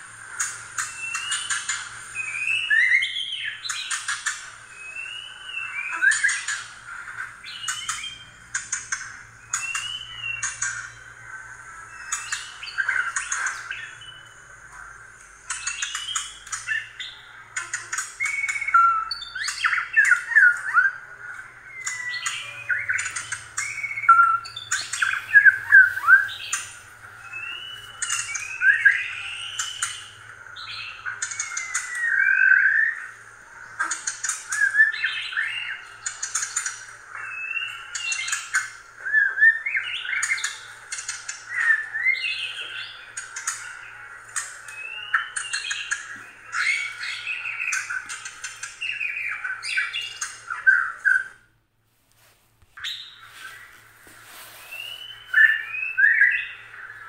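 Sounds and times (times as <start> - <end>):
mice squeaking: 0.3 - 14.5, 15.4 - 51.4, 52.8 - 57.0.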